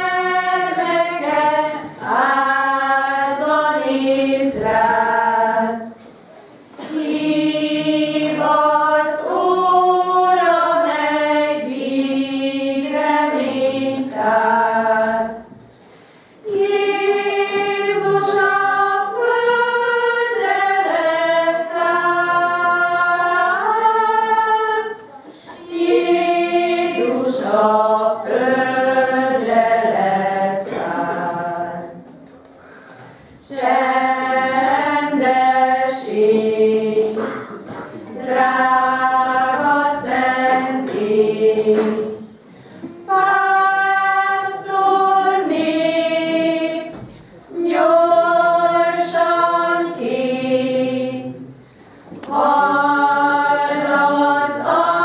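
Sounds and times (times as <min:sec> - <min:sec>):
choir singing: 0:00.0 - 0:06.0, 0:06.8 - 0:15.6, 0:16.4 - 0:32.2, 0:33.4 - 0:55.0.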